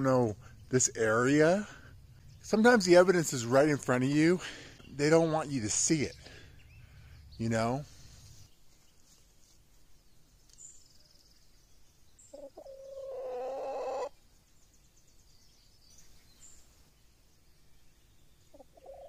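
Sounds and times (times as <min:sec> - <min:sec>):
faint wild bird chirps: 0:00.0 - 0:19.0
hen calling: 0:12.3 - 0:14.2, 0:18.5 - 0:19.0.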